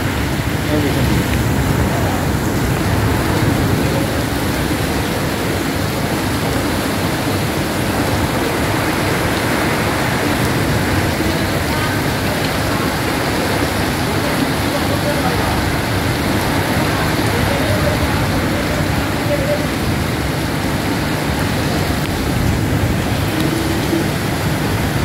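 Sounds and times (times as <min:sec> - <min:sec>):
heavy rain: 0:00.0 - 0:25.0.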